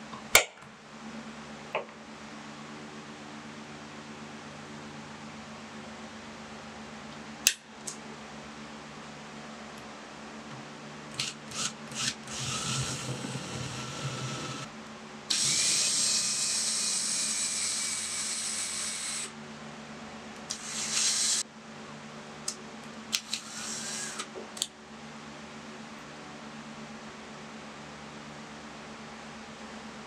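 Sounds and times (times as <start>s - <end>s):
power drill boring into wood: 11.2s - 14.7s, 15.3s - 19.3s, 20.5s - 21.4s.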